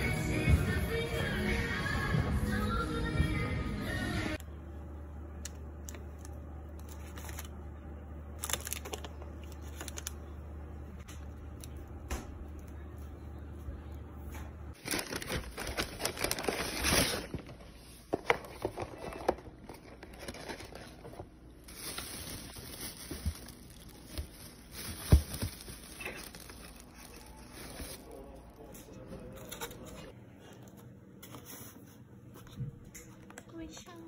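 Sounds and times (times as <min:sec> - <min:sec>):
food packaging crinkling: 0:05.9 - 0:07.6, 0:08.4 - 0:10.4, 0:14.8 - 0:28.7.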